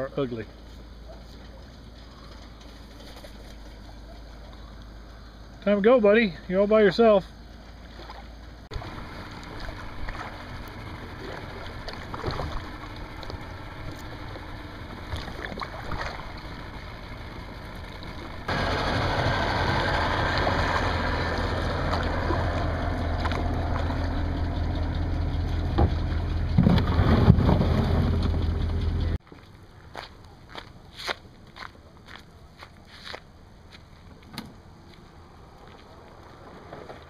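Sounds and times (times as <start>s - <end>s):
paddle splashes: 7.7s - 16.6s, 20.4s - 23.9s
water slapping a hull: 7.7s - 16.8s, 20.3s - 24.2s
plastic hull scraping on gravel: 26.5s - 28.6s.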